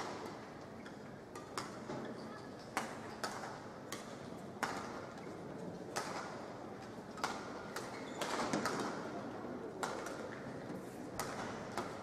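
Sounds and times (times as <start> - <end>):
racket smacking shuttlecock: 11.2 - 12.0.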